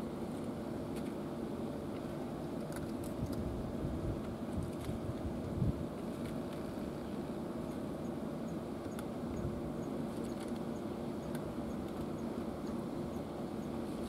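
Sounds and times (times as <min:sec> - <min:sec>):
faint hum: 0:00.0 - 0:14.0.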